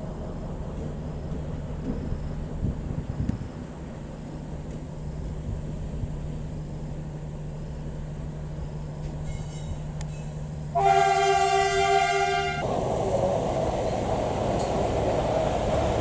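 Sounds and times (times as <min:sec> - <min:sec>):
diesel locomotive engine humming: 0:00.0 - 0:16.0
locomotive air horn: 0:10.7 - 0:12.7.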